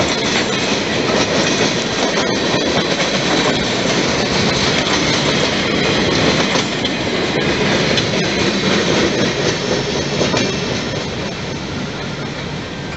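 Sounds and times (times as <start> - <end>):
freight train wheels on rails: 0.0 - 12.9.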